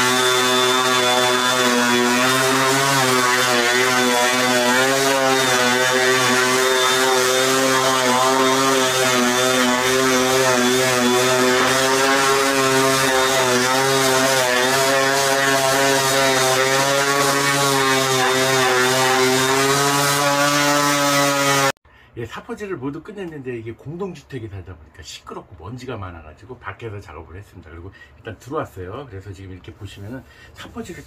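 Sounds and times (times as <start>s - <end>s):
orbital sander sanding wood: 0.0s - 21.8s.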